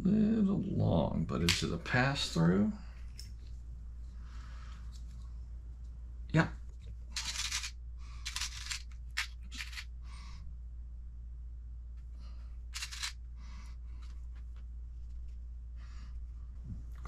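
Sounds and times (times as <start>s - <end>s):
steady low hum: 0.0s - 17.0s
small screws clinking and rattling: 7.2s - 9.9s, 12.7s - 13.2s.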